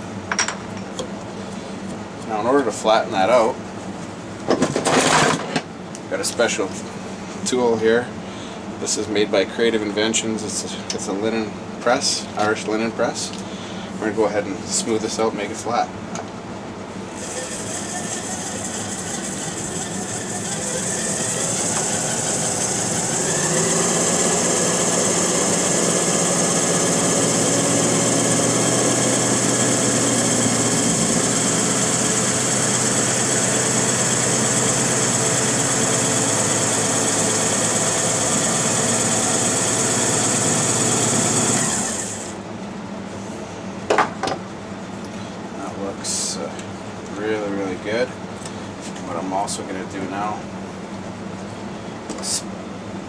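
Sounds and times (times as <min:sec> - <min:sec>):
lathe motor spinning: 0:17.1 - 0:42.4.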